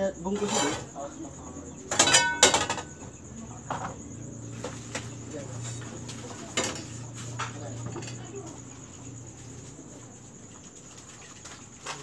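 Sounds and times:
ladle clinking on metal pot: 1.9 - 3.0.

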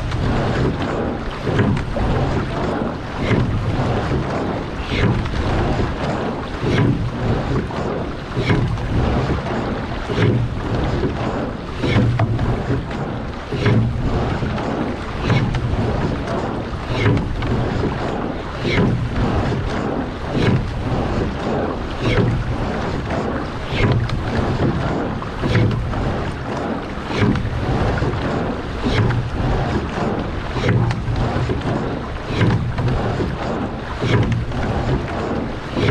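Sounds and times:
oar strokes knocking and splashing: 0.0 - 35.9
water rushing along hull: 0.0 - 35.9
wind on microphone: 0.0 - 35.9.

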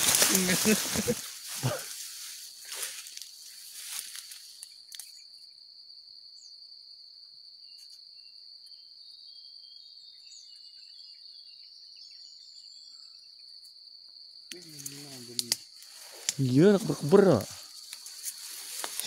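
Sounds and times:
grass rustling: 0.0 - 5.2, 14.6 - 19.0
high-pitched insect trill: 0.0 - 19.0
faint chirps: 7.6 - 13.8.

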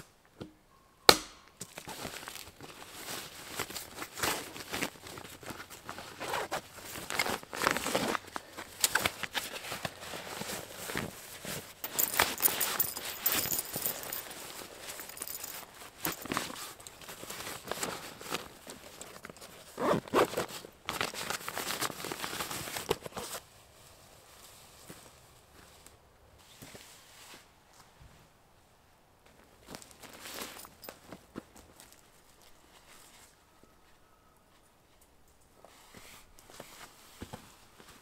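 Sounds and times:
fabric backpack rustling: 2.0 - 23.4, 29.7 - 32.0
knocks of straps and buckles: 6.2 - 21.2, 30.2 - 31.2.

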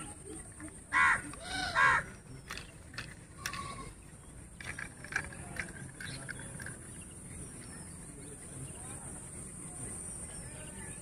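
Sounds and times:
toy tractor clicks and taps: 2.4 - 3.7.

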